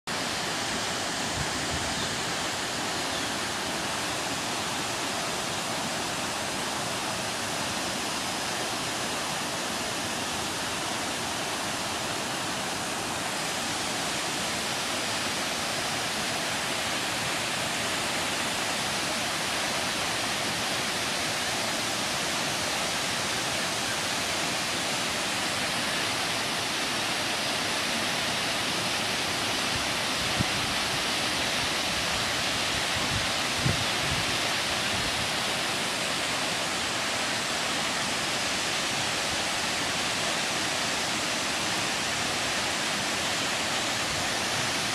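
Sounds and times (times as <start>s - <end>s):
flowing water rushing: 0.1s - 44.9s.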